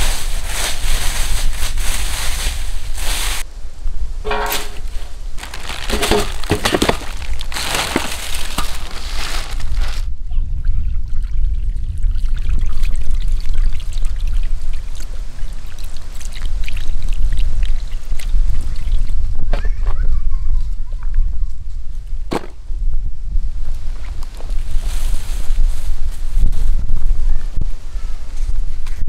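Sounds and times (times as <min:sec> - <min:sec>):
water trickling and splashing: 0:11.1 - 0:19.2.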